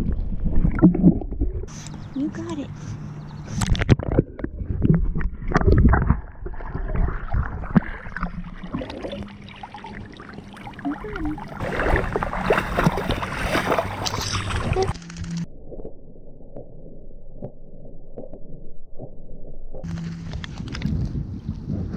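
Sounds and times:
water sloshing and splashing: 3.6s - 15.5s.

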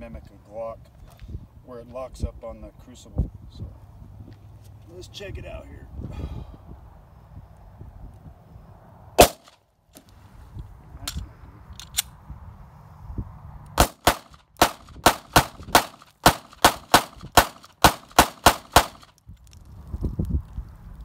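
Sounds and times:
pistol shots: 9.2s - 9.6s, 13.8s - 19.1s.

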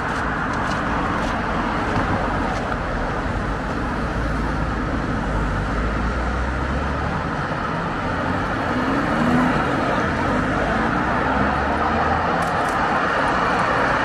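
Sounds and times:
road traffic: 0.0s - 14.0s
vehicle accelerating: 5.2s - 14.0s.

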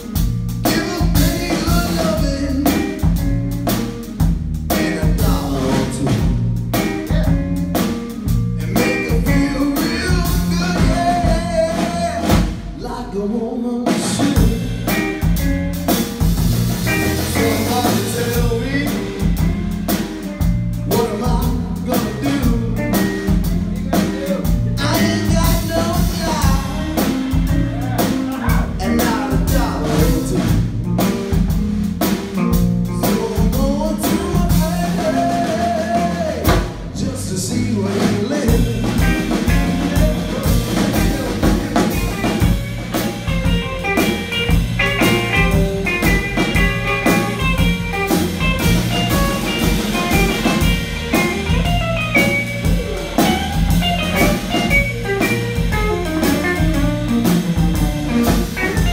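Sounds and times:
drum kit: 0.0s - 58.9s
electric bass: 0.0s - 58.9s
male singer: 0.6s - 3.2s, 4.7s - 7.6s, 8.6s - 15.2s, 17.2s - 19.5s, 20.9s - 30.8s, 32.8s - 42.6s
electric guitar solo: 41.9s - 57.0s.

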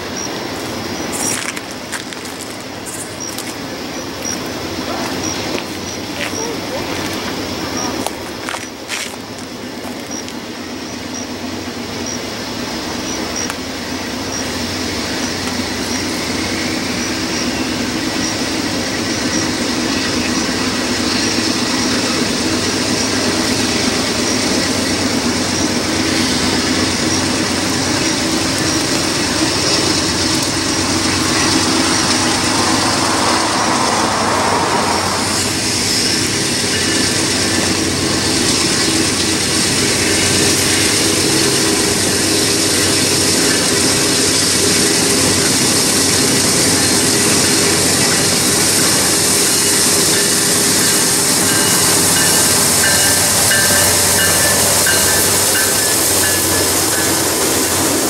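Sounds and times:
diesel locomotive engine running: 0.0s - 58.0s.

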